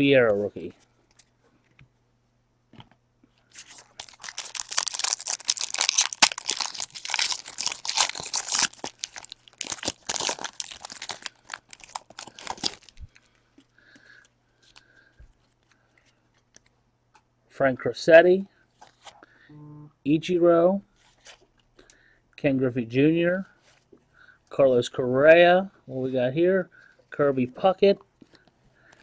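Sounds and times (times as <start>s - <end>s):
foil wrapper tearing and crinkling: 3.6s - 13.3s.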